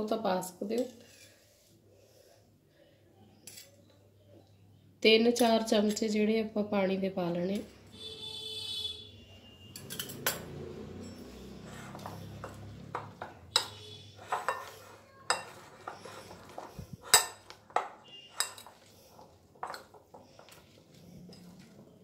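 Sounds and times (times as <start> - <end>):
spoon clinking and scraping bowl: 9.7 - 21.9.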